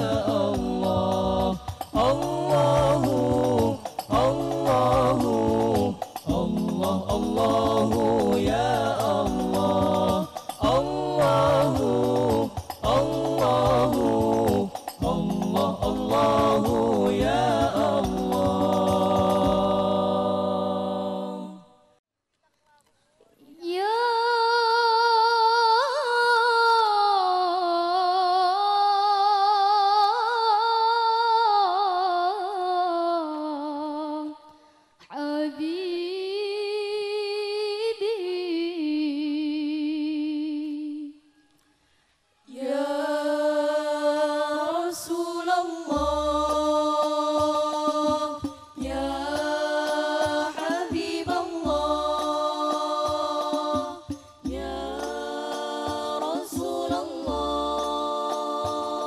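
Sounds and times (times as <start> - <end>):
deep drum notes: 0.0 - 19.9
women singing through a pa: 0.0 - 22.0, 23.4 - 41.5, 42.4 - 59.0.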